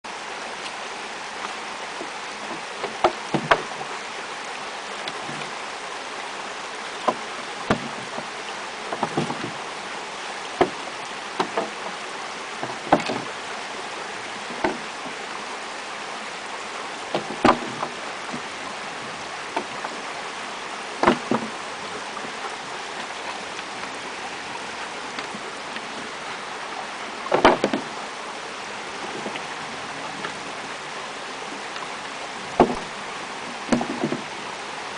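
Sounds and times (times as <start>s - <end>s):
stick knocking on wooden bridge: 2.5s - 3.8s, 7.1s - 8.3s, 8.9s - 9.6s, 10.6s - 10.8s, 11.4s - 12.0s, 12.6s - 13.4s, 14.5s - 15.2s, 17.1s - 18.5s, 21.0s - 21.6s, 27.3s - 27.9s, 32.5s - 32.9s, 33.7s - 34.3s.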